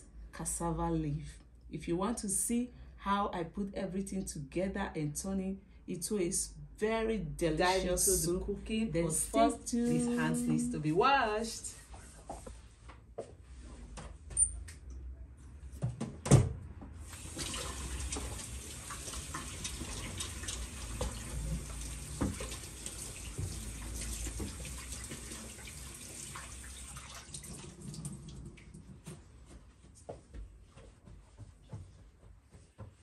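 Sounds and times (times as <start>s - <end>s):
kitchen tap running: 17.1s - 28.7s.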